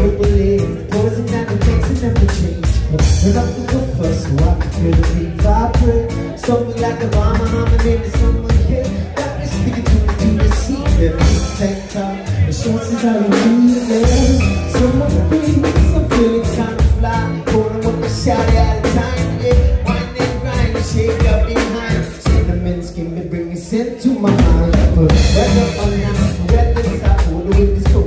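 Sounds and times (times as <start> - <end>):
drum kit beat: 0.0 - 23.4, 24.1 - 28.0
acoustic guitar: 0.0 - 28.0
electric bass: 0.0 - 28.0
person singing: 0.0 - 28.0.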